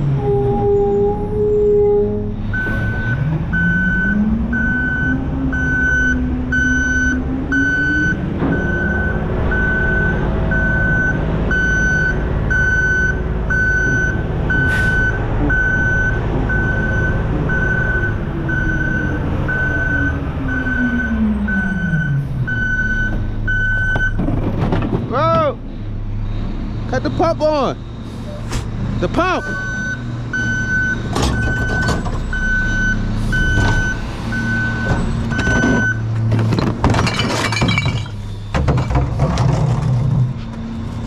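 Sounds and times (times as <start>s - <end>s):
truck engine revving: 0.0s - 36.8s
back-up alarm beeping: 2.5s - 24.2s, 28.3s - 36.1s.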